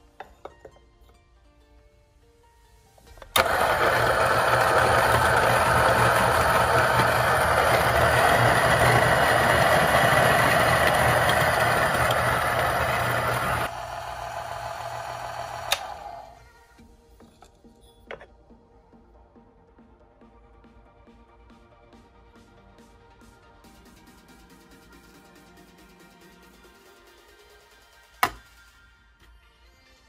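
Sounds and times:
grinder click: 3.1s - 13.7s, 14.9s - 16.2s
coffee grinder grinding: 3.1s - 16.4s.

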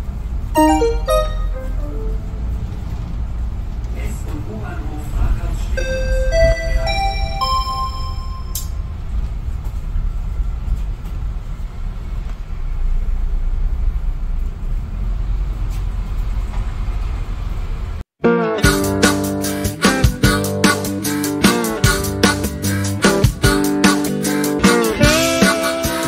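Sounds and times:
bus engine rumble: 0.0s - 18.1s
music playing: 0.6s - 2.6s, 5.8s - 8.8s, 18.3s - 26.0s
song playing: 0.6s - 2.6s, 5.8s - 8.8s, 18.3s - 26.0s.

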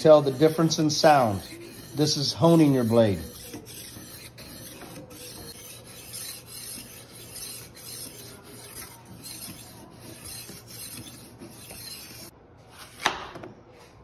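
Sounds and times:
knife sharpener grinding blade: 0.0s - 12.3s.

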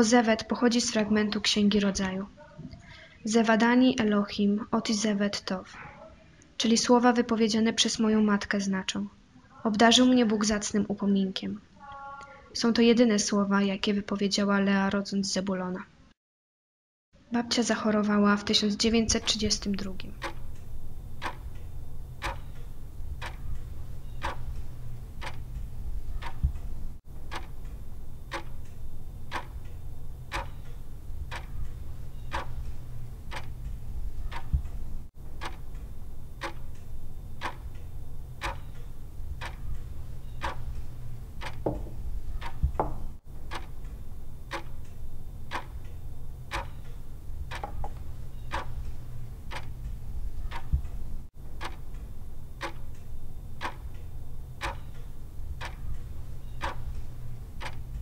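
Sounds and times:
low steady hum: 18.3s - 58.0s
wall clock ticking: 19.0s - 58.0s.

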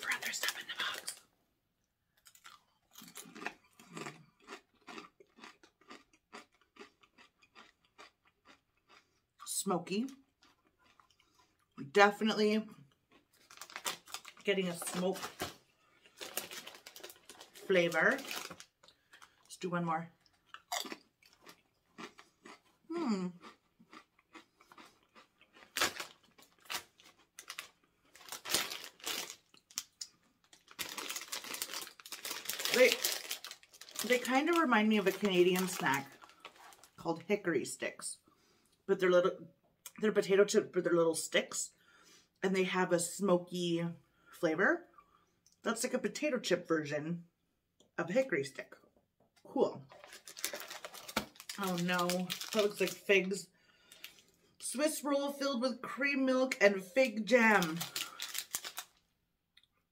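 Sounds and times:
person crunching potato chips: 0.0s - 1.2s, 2.1s - 11.8s, 12.6s - 19.6s, 20.2s - 37.0s, 49.8s - 54.6s, 57.2s - 59.2s.

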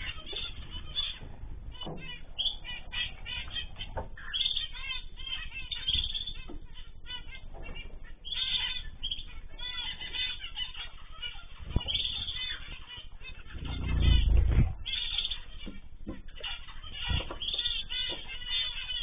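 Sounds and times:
birds chirping: 0.0s - 19.0s
wing flutters: 13.3s - 15.3s.

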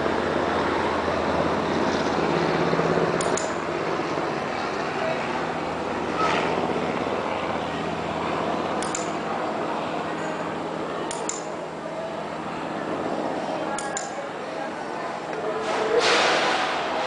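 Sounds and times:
low engine drone: 0.0s - 17.0s
urban traffic hum: 0.0s - 17.0s.

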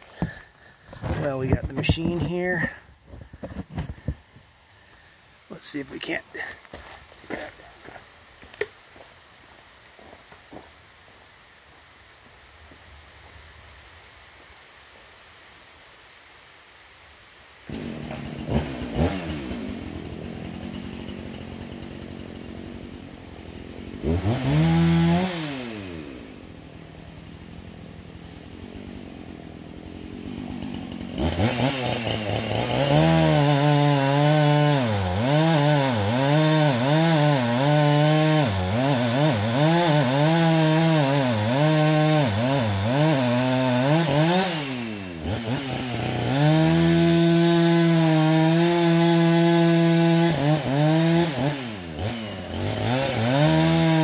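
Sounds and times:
chainsaw cutting wood: 0.0s - 5.0s, 17.6s - 54.0s.

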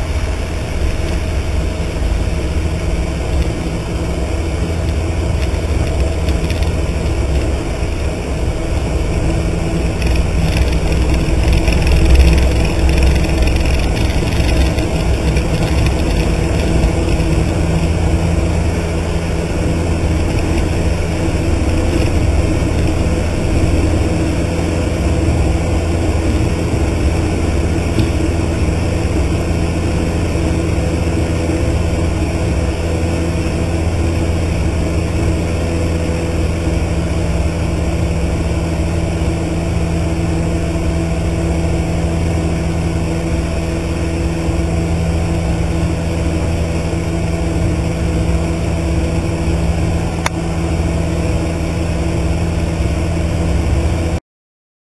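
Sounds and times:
airplane engine droning: 0.0s - 54.2s.

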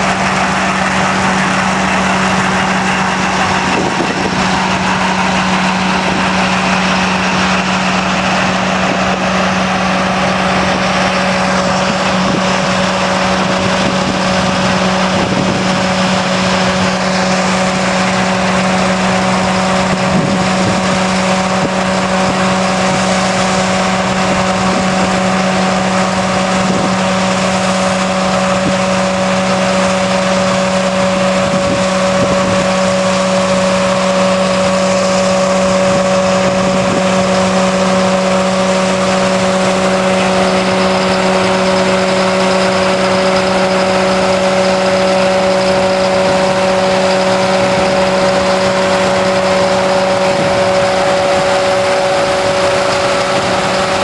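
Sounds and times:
harvester mechanical noise: 0.0s - 54.0s
tractor engine running: 0.0s - 54.0s.

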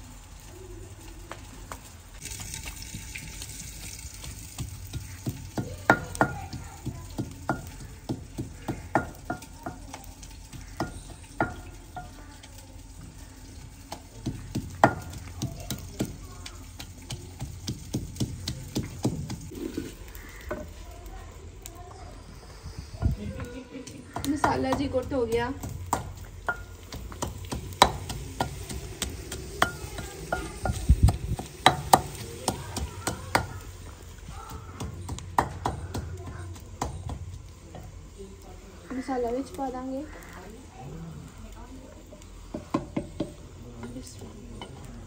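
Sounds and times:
frying sizzle: 0.0s - 45.0s
pestle pounding in a mortar: 2.4s - 12.2s, 13.6s - 19.6s, 23.9s - 37.9s, 42.5s - 44.0s.

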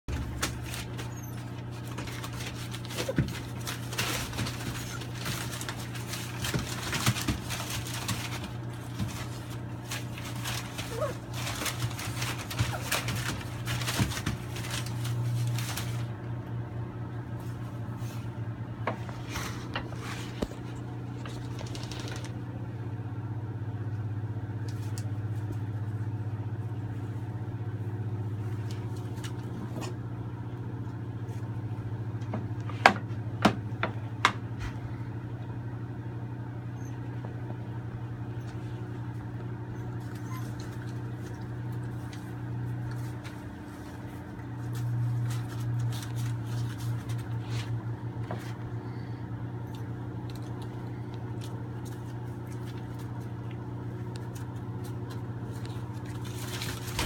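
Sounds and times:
low mechanical hum: 0.0s - 57.0s
newspaper rustling: 0.1s - 16.2s, 19.5s - 22.4s, 39.9s - 48.6s, 50.2s - 57.0s.

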